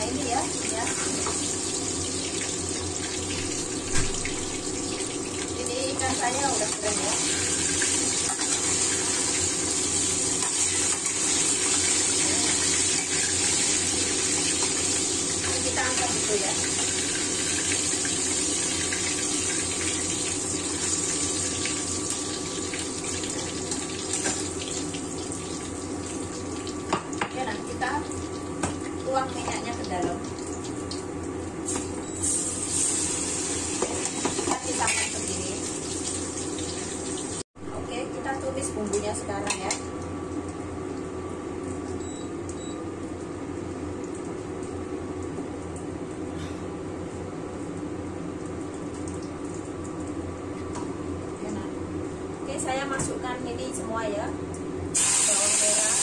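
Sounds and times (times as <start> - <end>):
oil sizzling in a wok: 0.0 - 37.4, 54.8 - 56.0
induction cooker humming: 0.0 - 56.0.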